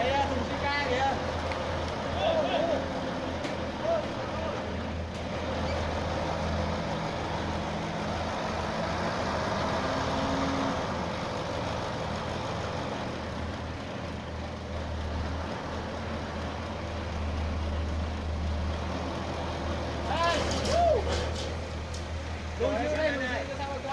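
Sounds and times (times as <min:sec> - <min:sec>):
dump truck diesel engine running: 0:00.0 - 0:23.9.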